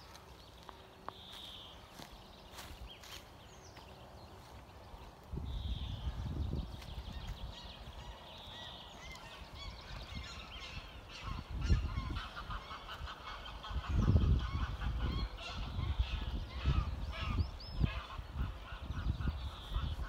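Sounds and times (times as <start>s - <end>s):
small birds calling: 0.0s - 20.0s
geese honking: 8.0s - 20.0s.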